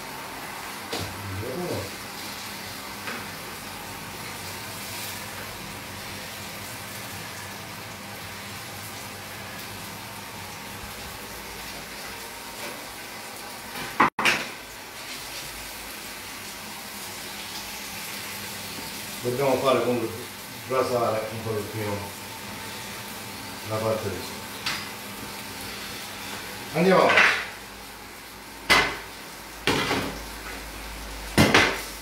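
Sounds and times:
fish sizzling in a frying pan: 0:01.4 - 0:32.0.

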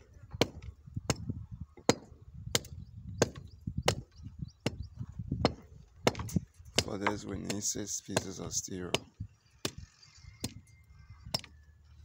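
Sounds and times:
hand tool striking wooden board: 0:05.4 - 0:09.8.

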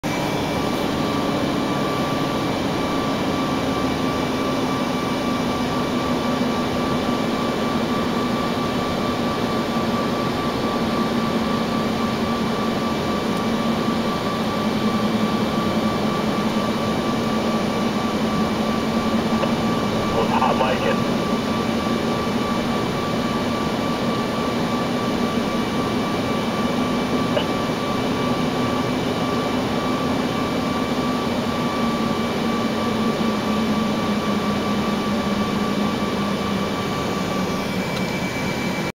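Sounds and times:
vehicle engine and road drone: 0:13.2 - 0:30.4.

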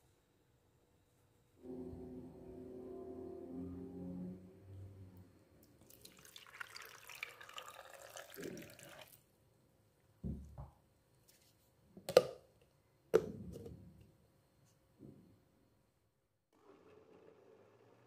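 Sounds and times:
water running: 0:05.8 - 0:09.3.

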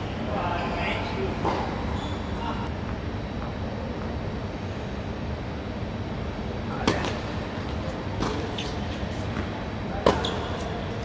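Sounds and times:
tennis ball bounces: 0:06.8 - 0:07.2, 0:08.2 - 0:10.4
tennis ball hit by racket: 0:06.8 - 0:07.2, 0:09.4 - 0:10.4.

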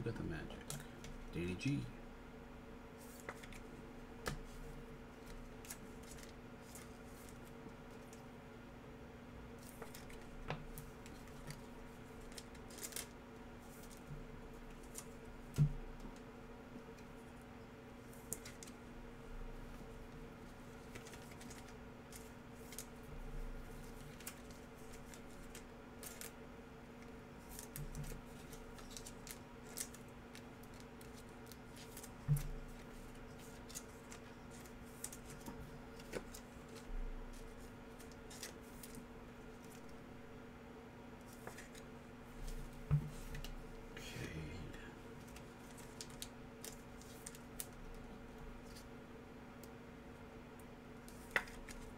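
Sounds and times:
steady low hum: 0:00.0 - 0:51.9
cards clicking and snapping: 0:51.1 - 0:51.9.

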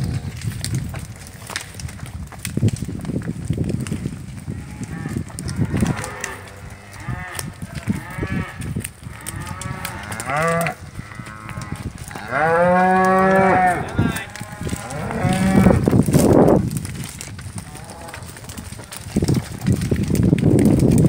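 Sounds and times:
cracks and steps: 0:00.0 - 0:21.0
cattle mooing: 0:04.6 - 0:15.9.

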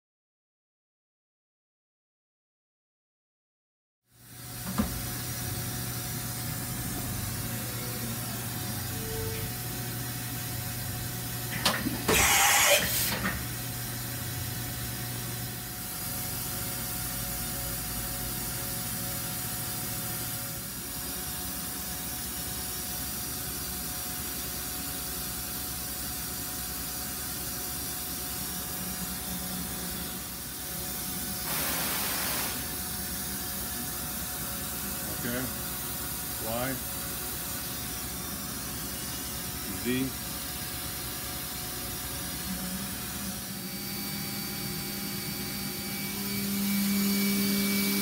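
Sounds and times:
machine hum: 0:04.2 - 0:16.1, 0:41.5 - 0:48.0
hissing air burst: 0:12.1 - 0:13.2, 0:31.4 - 0:32.7.

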